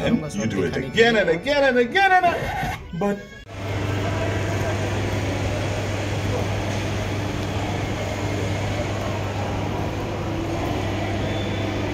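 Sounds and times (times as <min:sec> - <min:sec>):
distant voices: 0:03.2 - 0:11.9.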